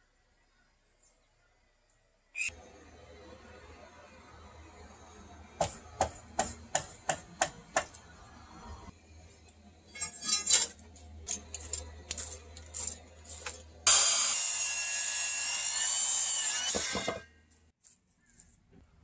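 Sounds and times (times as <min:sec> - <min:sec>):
circular saw cutting wood: 0:13.8 - 0:17.3.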